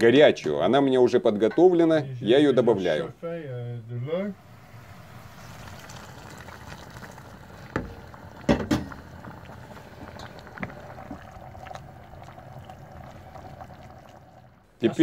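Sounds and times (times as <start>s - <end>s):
water pouring from kettle: 4.5s - 14.6s.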